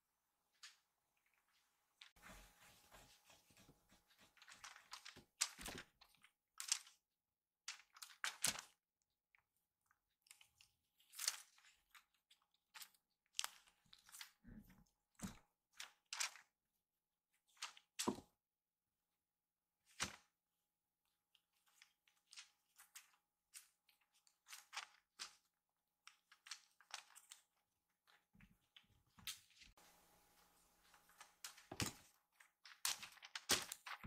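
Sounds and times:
kitten scuffling with toy: 0:02.1 - 0:05.2.

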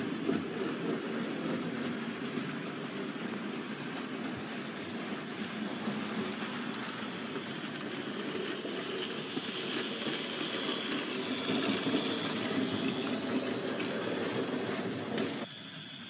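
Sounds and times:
model train motor whirring: 0:03.2 - 0:16.0.

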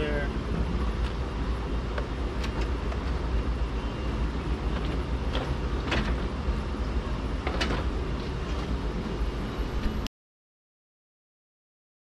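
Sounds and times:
steady low rumble: 0:00.0 - 0:10.1
clicks and knocks of car parts: 0:04.7 - 0:06.3, 0:07.4 - 0:07.9.

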